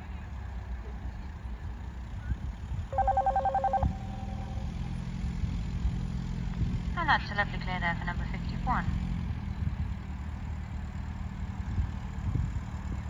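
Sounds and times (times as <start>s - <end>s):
low steady rumble: 2.9s - 8.9s
electric bell ringing: 3.0s - 5.0s.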